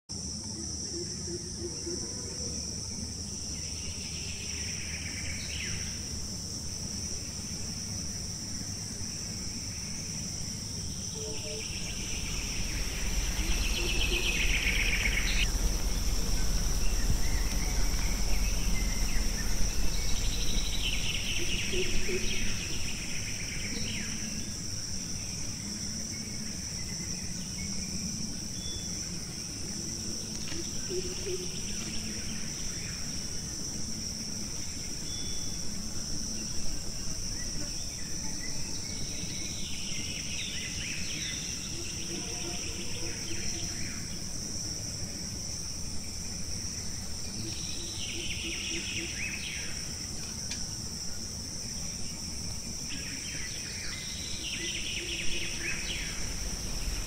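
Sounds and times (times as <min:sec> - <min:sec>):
insect buzzing drone: 0:00.1 - 0:57.0
rising insect calls: 0:00.2 - 0:57.0
low rumble: 0:10.9 - 0:24.7, 0:55.2 - 0:57.0.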